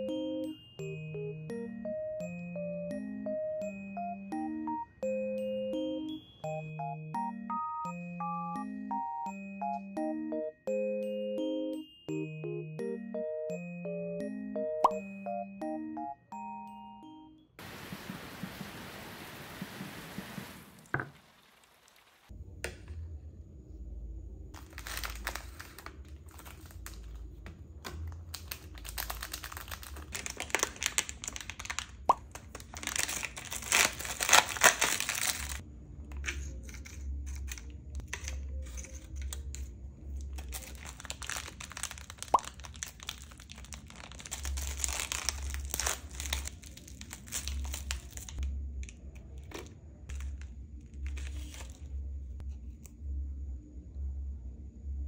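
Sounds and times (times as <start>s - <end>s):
snack packaging crinkling: 24.6s - 35.6s, 36.2s - 52.0s.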